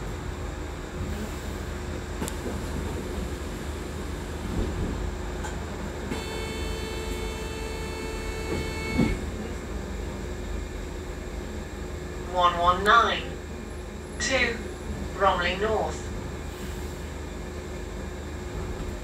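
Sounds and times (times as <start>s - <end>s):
bus cabin rumble: 0.0s - 19.0s
high whine: 6.1s - 9.5s.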